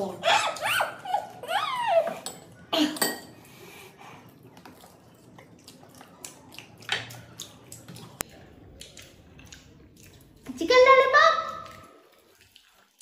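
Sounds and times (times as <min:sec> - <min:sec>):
plates and bowls clattering: 0:02.1 - 0:03.4
quiet chewing: 0:03.5 - 0:10.6, 0:11.6 - 0:13.0.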